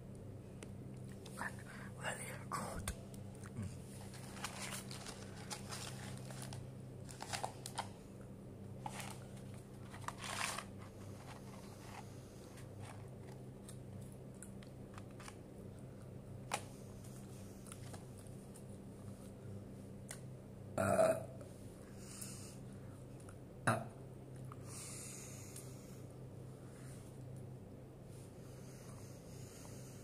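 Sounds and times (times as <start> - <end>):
steady low hum: 0.0 - 30.0
cardboard carton crinkling: 4.0 - 7.9, 8.8 - 13.4.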